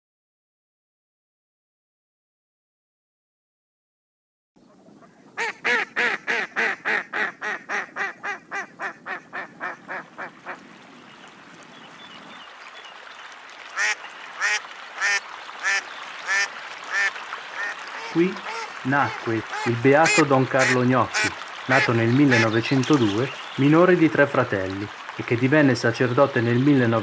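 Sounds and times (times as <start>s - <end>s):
duck quacking: 5.4s - 10.6s, 13.8s - 22.6s.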